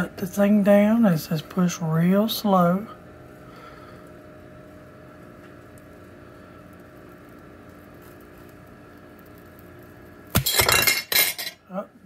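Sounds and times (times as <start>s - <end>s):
faint room hum: 0.0s - 12.0s.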